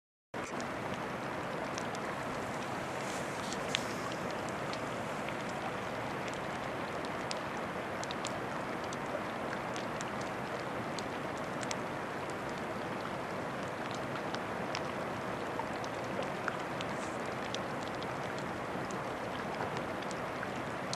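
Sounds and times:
floating ice crackling: 0.4s - 7.4s, 8.0s - 20.9s
rushing water hiss: 0.4s - 8.0s, 16.2s - 19.9s.

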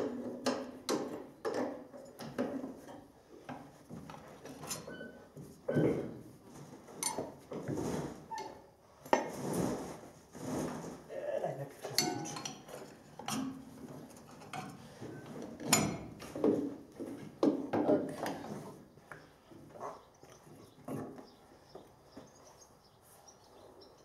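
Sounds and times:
metal clinks and knocks: 11.8s - 13.6s.

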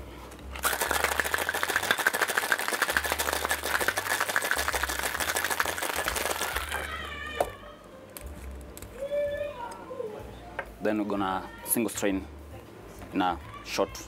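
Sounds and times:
ice rattling in cocktail shaker: 0.6s - 6.9s.

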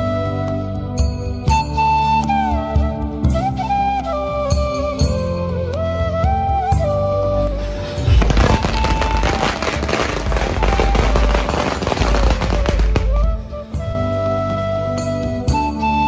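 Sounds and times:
flute-led folk music: 0.0s - 16.0s
firecrackers banging: 8.0s - 13.5s.

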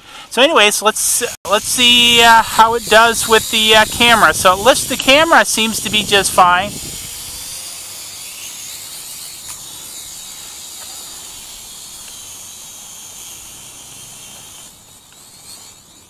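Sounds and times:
drone propellers whirring: 0.0s - 16.0s.

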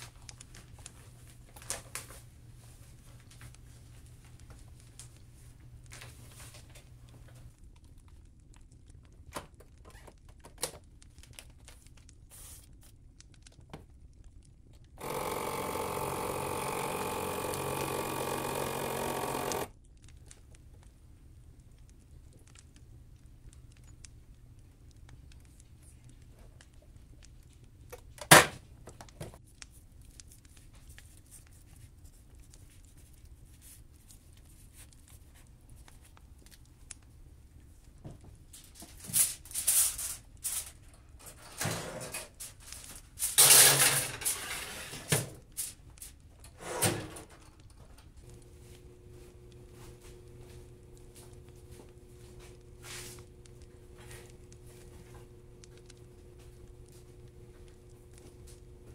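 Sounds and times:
vacuum sealer pump running: 15.0s - 19.7s, 48.2s - 58.9s.

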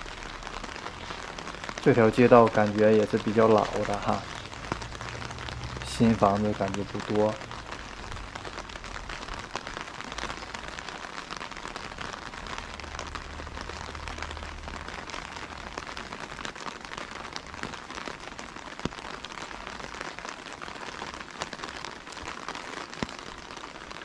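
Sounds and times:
steady rain falling: 0.0s - 24.0s.

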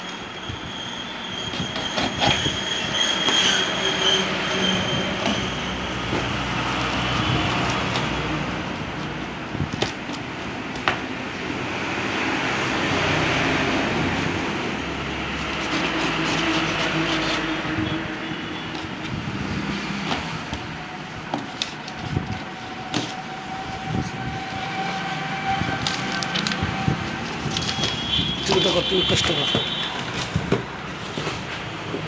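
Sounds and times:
faint high squeal: 0.0s - 6.0s
packing tape peeling off cardboard: 15.4s - 17.8s, 25.6s - 29.2s.

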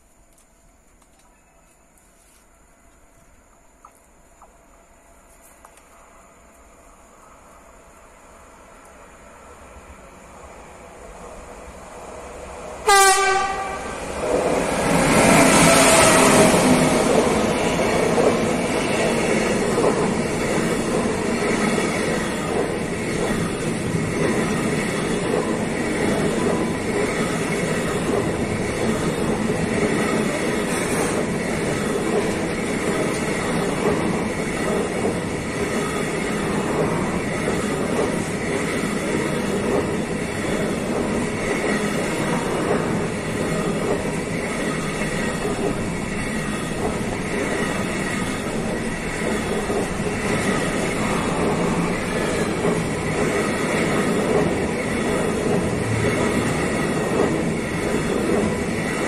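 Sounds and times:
train running on rails: 0.0s - 59.0s
train horn blast: 12.8s - 14.0s.

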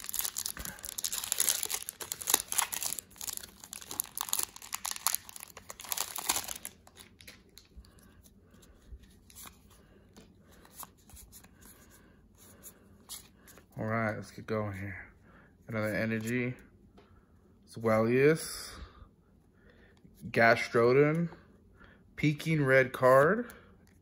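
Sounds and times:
foil wrapper tearing and crinkling: 0.0s - 7.4s.

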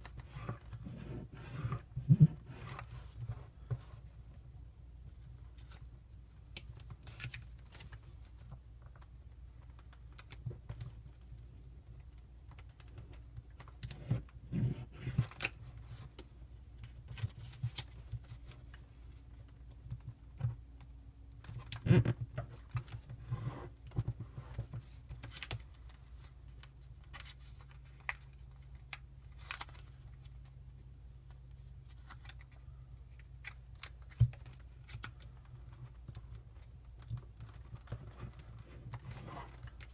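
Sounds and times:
paper being folded and creased: 21.5s - 30.5s, 31.5s - 39.9s.

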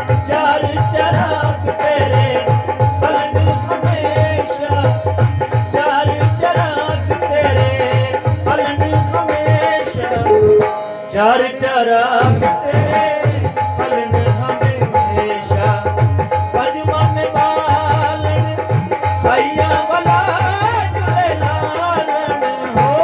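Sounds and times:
harmonium notes: 0.0s - 23.0s
man singing: 0.0s - 23.0s
tabla drumming: 0.0s - 23.0s.

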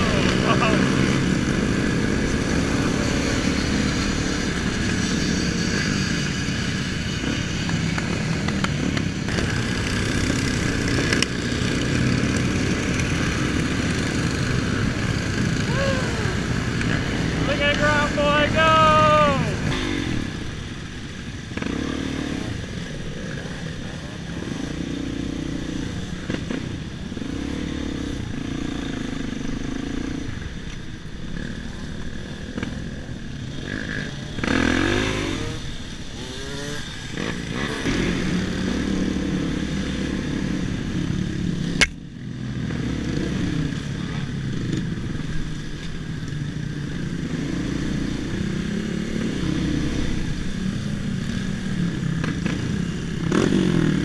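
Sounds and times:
motorcycle engine revving: 0.0s - 54.0s
other motorcycle engines: 0.0s - 54.0s
sharp click: 41.8s - 42.0s.

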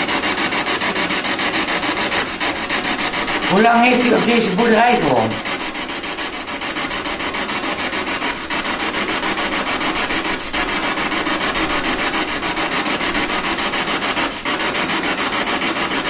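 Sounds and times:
pulsing radio static hiss: 2.3s - 7.4s.

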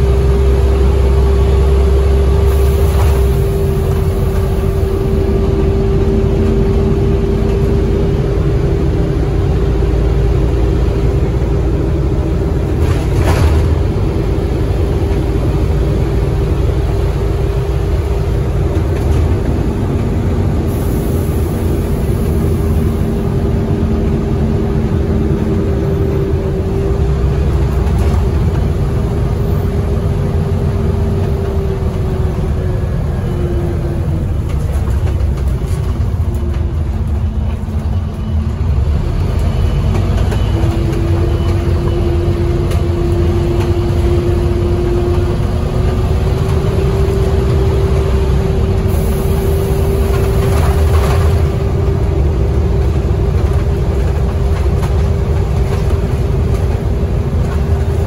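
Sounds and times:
drivetrain whine: 0.0s - 58.0s
engine and road rumble: 0.0s - 58.0s.

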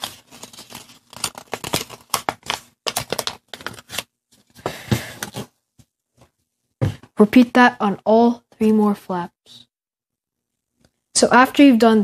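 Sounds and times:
paper crinkling and crackling: 0.0s - 4.6s.

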